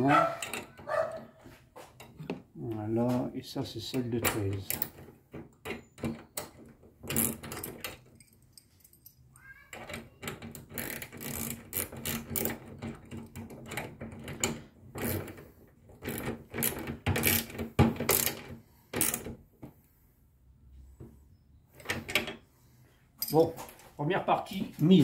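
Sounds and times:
socket ratchet clicking: 18.1 - 18.4.

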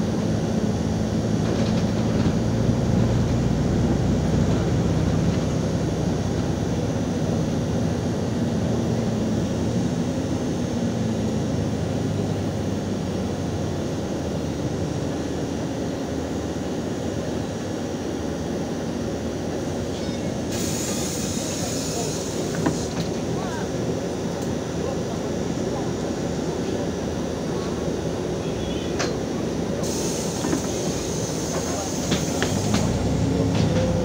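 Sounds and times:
bus engine hum and road rumble: 0.0 - 34.0
compressed air hiss: 20.5 - 23.0, 29.8 - 32.6.

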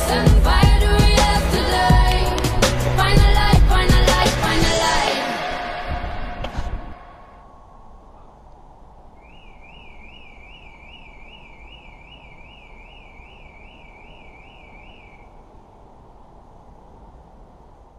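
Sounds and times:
low rumble: 0.1 - 9.2
electronic alarm warbling: 9.3 - 15.3.

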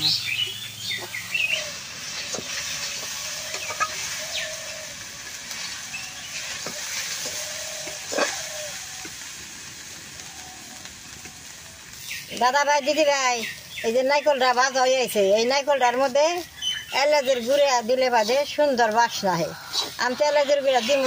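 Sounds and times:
faint cooking hiss: 0.0 - 21.0
metal spatula scraping in wok: 5.5 - 8.6.

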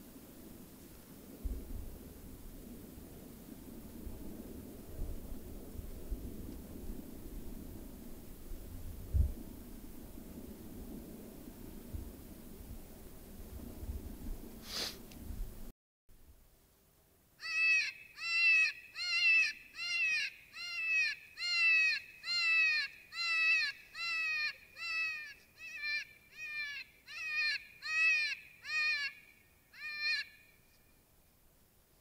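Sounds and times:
predator call distress cries: 17.4 - 30.4.

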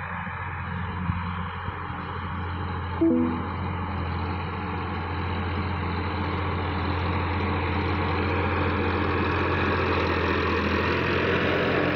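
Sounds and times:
tractor diesel engine under load: 3.6 - 11.9.

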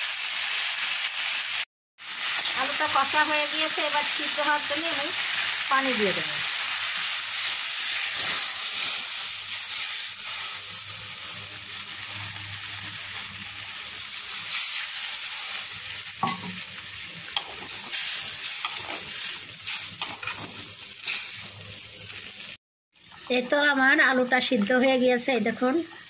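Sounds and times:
food sizzling in hot oil: 0.0 - 26.0
metal spatula scraping pan: 17.3 - 21.3.

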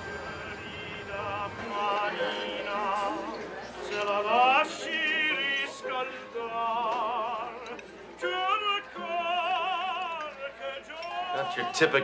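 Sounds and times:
man singing operatically: 4.0 - 12.0.

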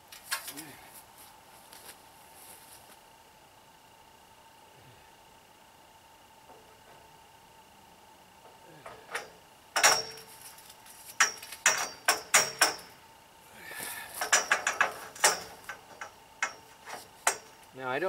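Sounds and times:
metal pipes clanking: 8.9 - 10.3, 11.2 - 13.0, 14.2 - 17.6.

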